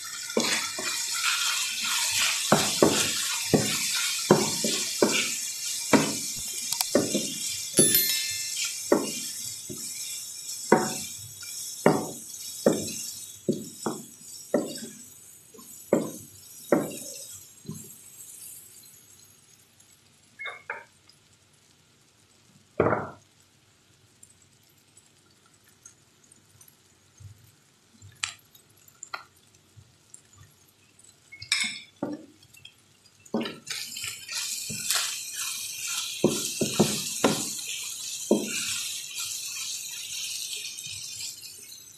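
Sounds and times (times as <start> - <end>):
high sizzling hiss: 0.0 - 19.3, 33.6 - 41.9
wooden spatula scraping a pan: 0.2 - 6.3, 33.4 - 40.5
wooden spatula knocking pan: 6.9 - 7.3, 11.8 - 12.9, 15.9 - 17.0, 36.2 - 37.6.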